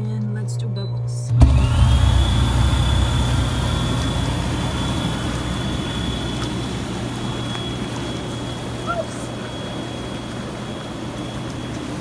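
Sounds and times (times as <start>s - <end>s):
air bubbling through water: 1.3s - 8.6s
air blower motor whine: 1.3s - 12.0s.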